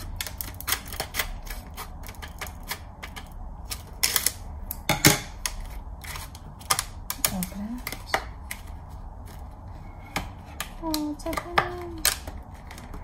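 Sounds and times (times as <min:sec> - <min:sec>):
scissors cutting plastic: 0:00.0 - 0:08.7.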